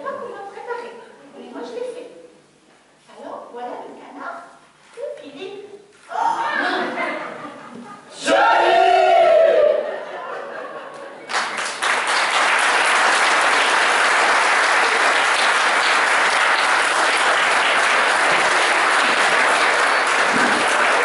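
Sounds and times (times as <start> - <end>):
audience applauding: 11.2 - 21.0.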